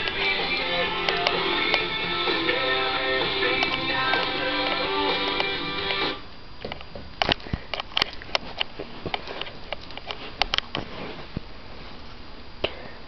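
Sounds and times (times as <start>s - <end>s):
sharp clicks and taps: 3.4s - 6.0s.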